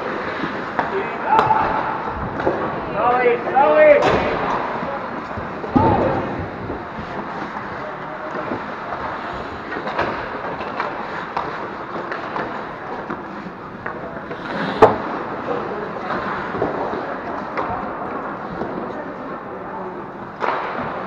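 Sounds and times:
skates scraping ice: 0:00.0 - 0:21.0
sticks and puck clacking: 0:00.0 - 0:21.0.

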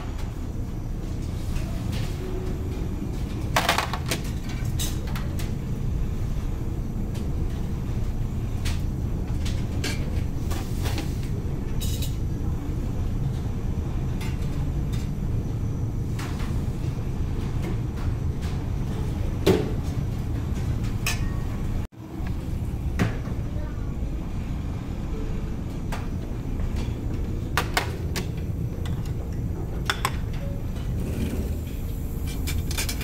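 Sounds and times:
low rumble of ship engines: 0:00.0 - 0:33.0.

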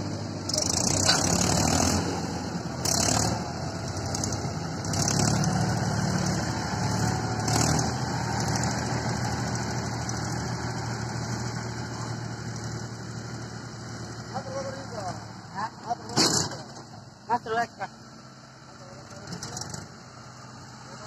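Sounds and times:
tractor diesel engine running: 0:00.0 - 0:21.0.

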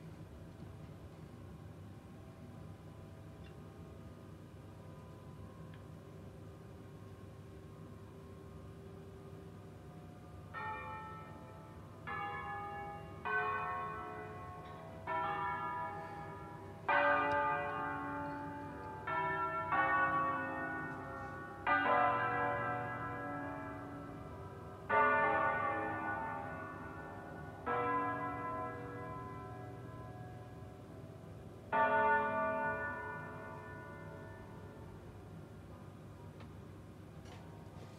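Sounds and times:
church bells struck in melody: 0:10.0 - 0:35.2.

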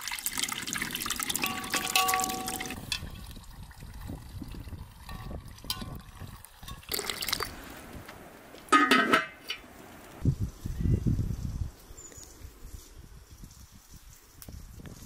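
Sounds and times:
metal lid clanking on pot: 0:01.4 - 0:03.1, 0:08.7 - 0:09.6.

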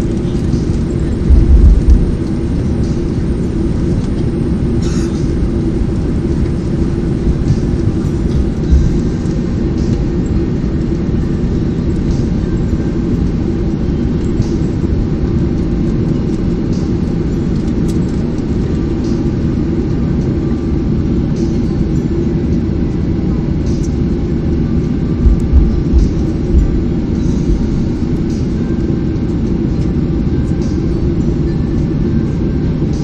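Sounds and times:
aircraft cabin rumble: 0:00.0 - 0:33.0
aircraft bump: 0:00.4 - 0:03.2, 0:07.2 - 0:10.0, 0:25.1 - 0:28.6.

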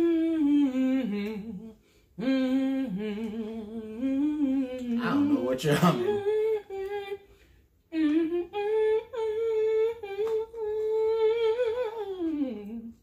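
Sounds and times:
person humming: 0:00.0 - 0:07.2.

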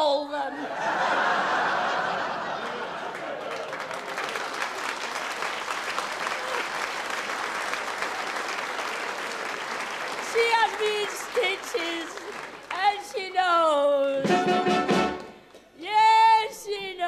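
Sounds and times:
audience clapping: 0:01.6 - 0:14.2.

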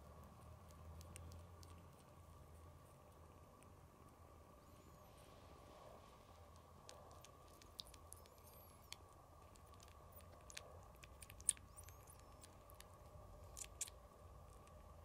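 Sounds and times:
kitten sucking wet clicks: 0:00.0 - 0:03.8, 0:06.3 - 0:15.0.

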